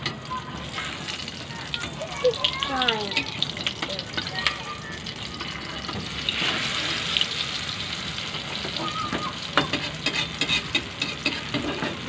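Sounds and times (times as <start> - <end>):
omelette sizzling in oil: 0.0 - 12.0
metal spatula scraping wok: 6.1 - 7.2, 9.6 - 12.0.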